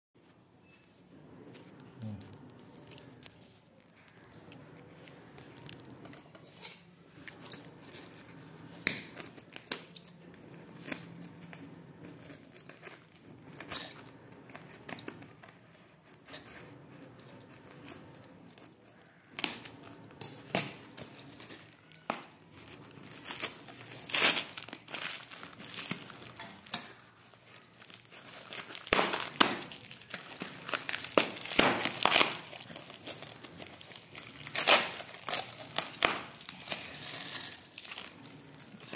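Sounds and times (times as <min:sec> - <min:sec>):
tape and wrapping crinkling: 0:01.5 - 0:38.9
scissors cutting packing tape: 0:23.1 - 0:38.1.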